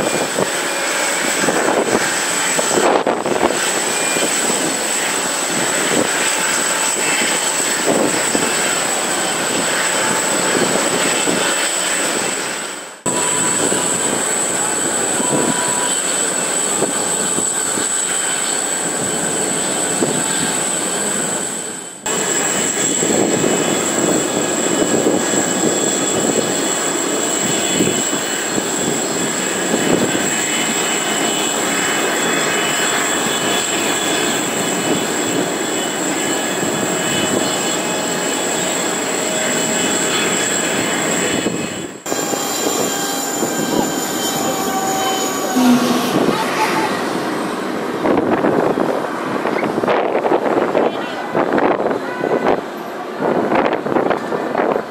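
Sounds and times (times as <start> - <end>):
jet engines running at low power: 0.0 - 51.9
thin high tone: 42.1 - 47.5.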